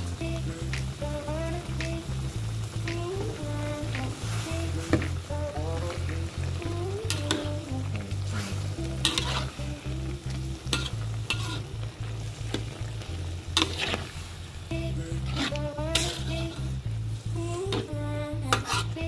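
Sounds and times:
food sizzling: 0.0 - 19.0
metal ladle scraping a wok: 8.3 - 9.6, 10.7 - 11.7, 13.6 - 14.3, 15.2 - 16.7, 18.5 - 19.0.

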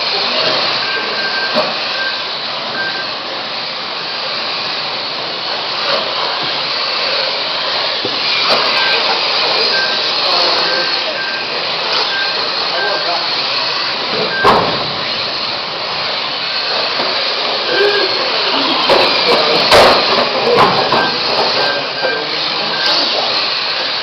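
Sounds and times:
rc car motors whirring: 0.0 - 24.0
short electronic beeps: 0.2 - 3.2, 8.4 - 14.8, 18.8 - 23.8.

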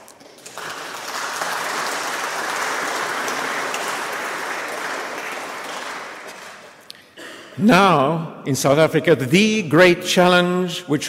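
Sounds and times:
audience applauding: 0.0 - 6.9.

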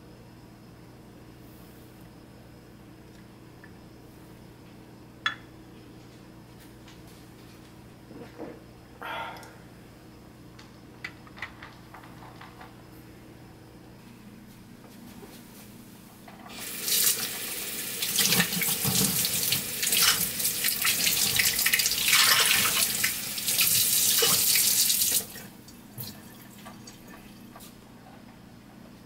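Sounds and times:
faucet running into steel sink: 16.5 - 25.4.

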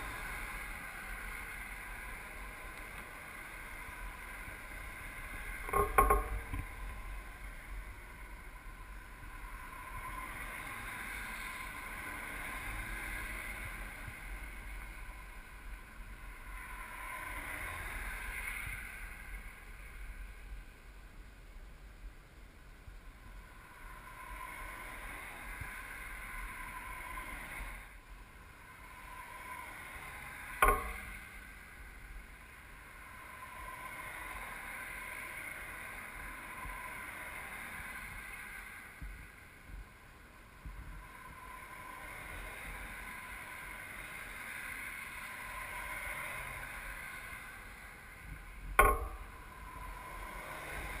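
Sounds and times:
cars passing: 0.0 - 20.6, 23.3 - 51.0
sharp thumps: 5.7 - 6.7, 30.6 - 31.2, 48.8 - 49.4.

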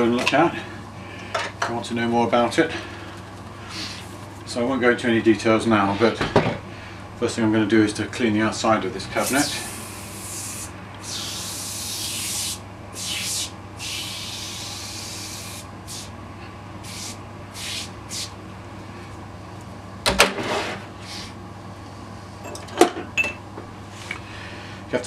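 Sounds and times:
aerosol can spraying: 9.2 - 16.1, 16.8 - 18.3.

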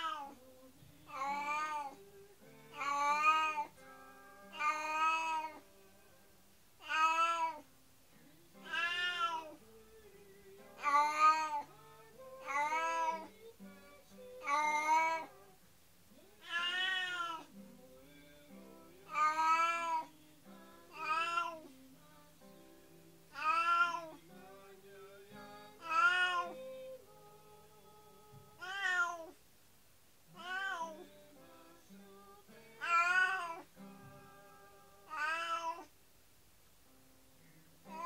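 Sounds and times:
cat meowing: 0.0 - 0.3, 4.5 - 5.6, 6.8 - 7.6, 8.6 - 9.6, 10.8 - 11.6, 16.2 - 17.5, 19.1 - 20.1, 20.9 - 21.7, 23.3 - 24.2, 25.8 - 26.7, 28.6 - 29.4, 30.4 - 31.0, 32.8 - 33.7, 34.9 - 35.9.

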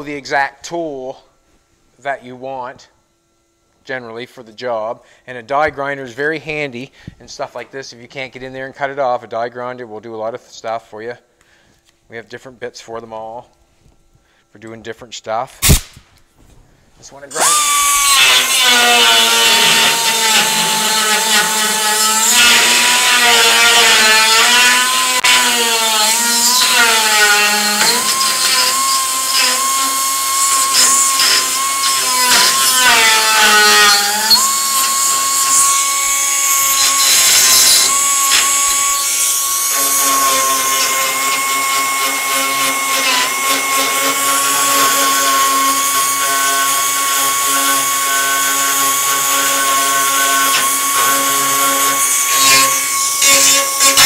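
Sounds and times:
die grinder grinding metal: 17.3 - 54.0.

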